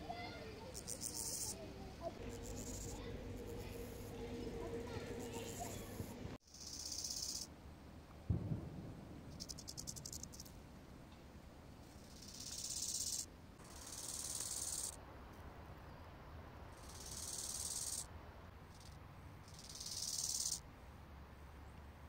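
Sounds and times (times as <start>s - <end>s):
grasshopper stridulating: 0.6s - 7.5s, 9.3s - 10.6s, 11.9s - 15.0s, 16.8s - 18.1s, 18.7s - 20.6s.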